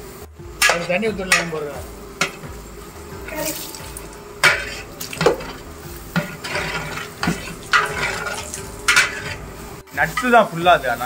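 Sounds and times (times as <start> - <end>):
metal utensils clinking on pot: 0.6 - 2.5, 3.3 - 10.4
water pouring into pot: 3.3 - 9.6.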